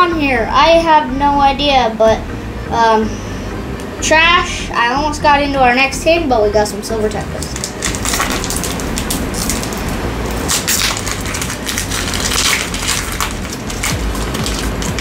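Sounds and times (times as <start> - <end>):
foil wrapper crinkling and tearing: 7.4 - 15.0.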